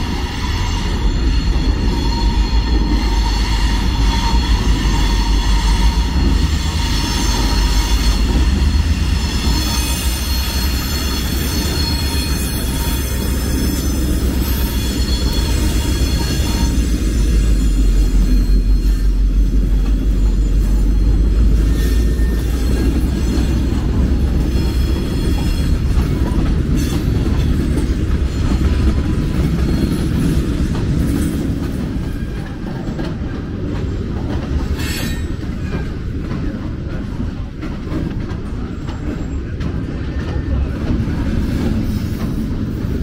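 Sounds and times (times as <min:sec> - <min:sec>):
faint high wheel squeal: 0:00.0 - 0:30.5, 0:34.8 - 0:36.0
freight cars rolling rumble: 0:00.0 - 0:43.0
locomotive engine rumble: 0:00.0 - 0:43.0.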